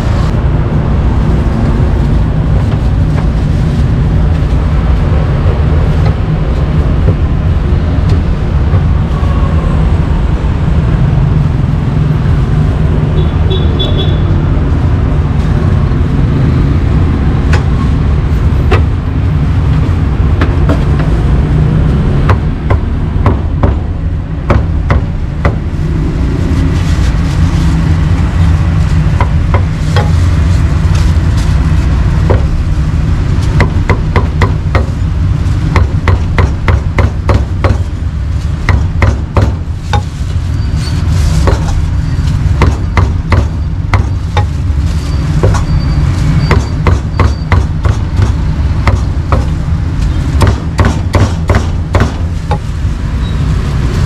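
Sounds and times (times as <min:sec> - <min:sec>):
street traffic rumble: 0:00.0 - 0:54.0
sharp irregular knocks: 0:24.5 - 0:25.7, 0:35.7 - 0:37.9, 0:38.7 - 0:40.2, 0:42.6 - 0:44.6, 0:46.4 - 0:49.6, 0:50.4 - 0:52.6.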